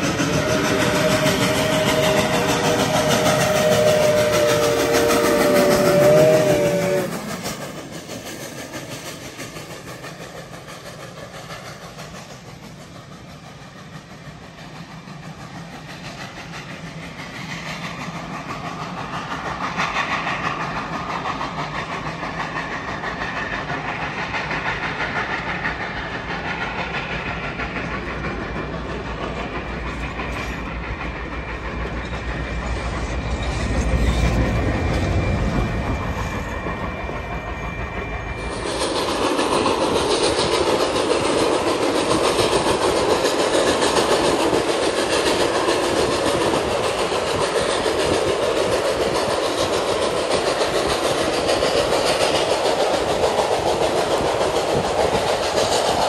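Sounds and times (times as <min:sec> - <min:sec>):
train wheels on rails: 0:00.0 - 0:56.0
steam whistle chord: 0:00.3 - 0:07.3.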